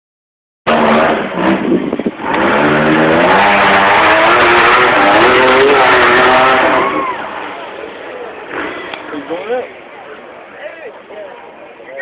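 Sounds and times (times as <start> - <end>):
buggy engine revving hard: 0.7 - 7.4, 8.4 - 9.2.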